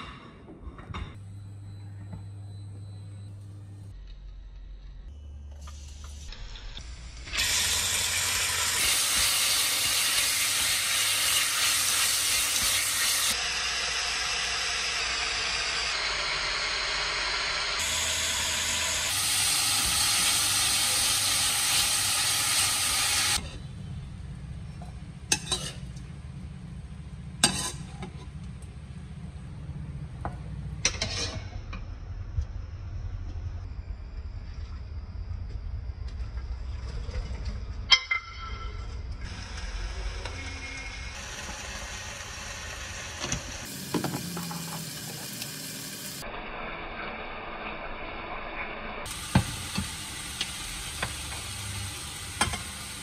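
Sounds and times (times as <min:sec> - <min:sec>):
meat sizzling in hot oil: 0:07.3 - 0:23.4, 0:39.4 - 0:46.3, 0:49.1 - 0:53.0
low hum: 0:23.4 - 0:43.6.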